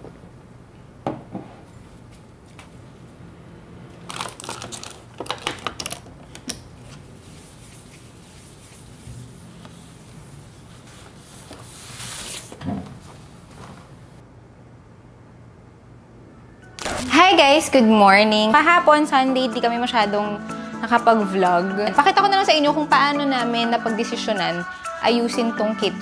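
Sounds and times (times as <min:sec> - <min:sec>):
paper tissue crinkling: 0:04.1 - 0:14.0, 0:16.8 - 0:17.2
tissue wiped across wooden table: 0:07.2 - 0:12.6.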